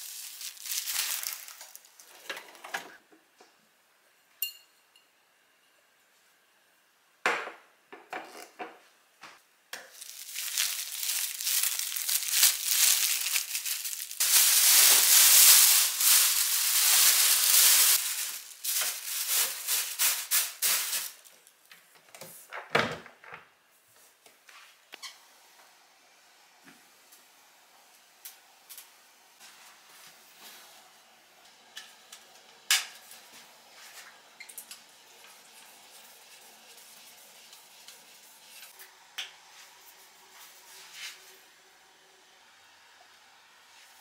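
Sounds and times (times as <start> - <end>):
plastic bag rustling: 0.0 - 2.3, 9.9 - 21.5.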